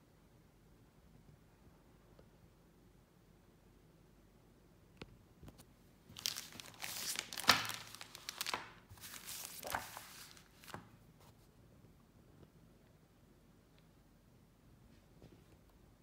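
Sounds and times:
plastic bag crinkling: 0:06.1 - 0:10.8.

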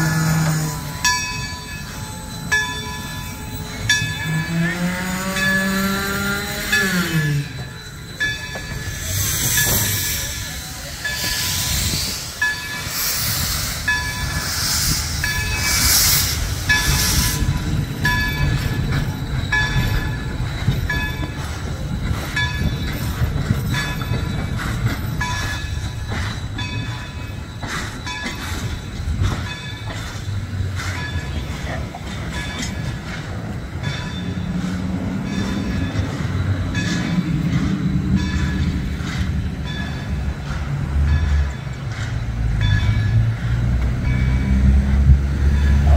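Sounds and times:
train rumbling on rails: 0:00.0 - 0:45.9
hissing: 0:08.7 - 0:19.4.

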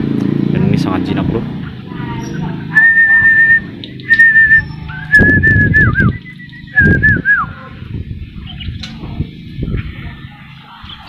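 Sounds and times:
person whistling held notes: 0:02.8 - 0:07.6.

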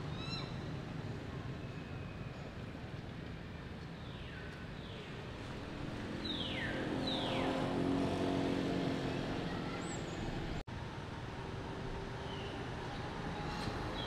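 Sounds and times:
vehicle engine passing: 0:05.8 - 0:10.6.

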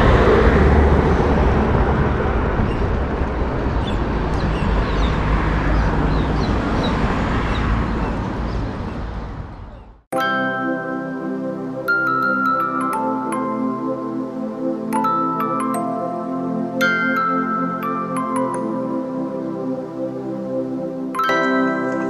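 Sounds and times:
steady rumbling noise: 0:00.0 - 0:06.8
birds chirping: 0:02.6 - 0:03.0, 0:03.7 - 0:10.1.

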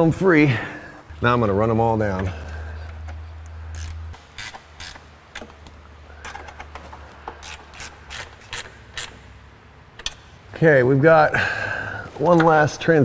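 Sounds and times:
hand ratchet clicking: 0:02.8 - 0:09.3.

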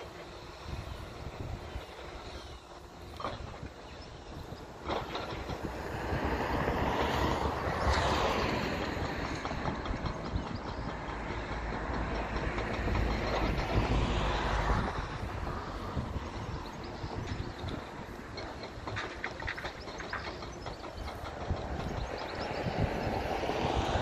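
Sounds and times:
diesel excavator engine: 0:00.0 - 0:24.0.

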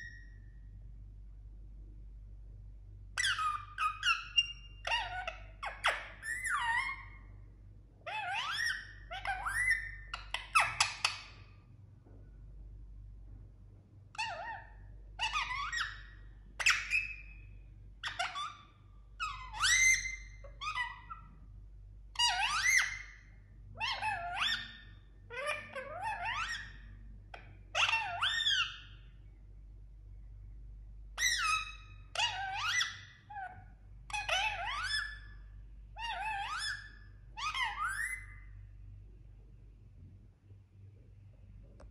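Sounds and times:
parakeet chirps and whistles: 0:00.0 - 0:00.5, 0:03.1 - 0:07.4, 0:08.0 - 0:11.5, 0:14.1 - 0:21.5, 0:22.1 - 0:29.4, 0:31.1 - 0:38.6.

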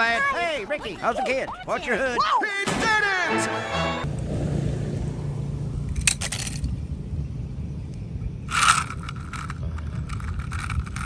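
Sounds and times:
steady low rumble: 0:04.0 - 0:11.0
toy truck crunching on concrete: 0:08.5 - 0:11.0.

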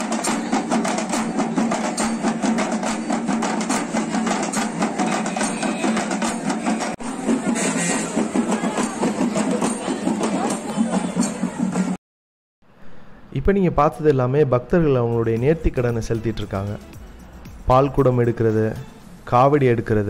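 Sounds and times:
fast driving drumming: 0:00.0 - 0:12.0.

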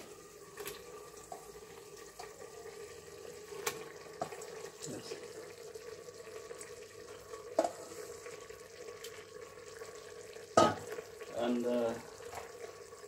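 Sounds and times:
metal bowl clanking: 0:07.5 - 0:07.9, 0:10.6 - 0:11.0.

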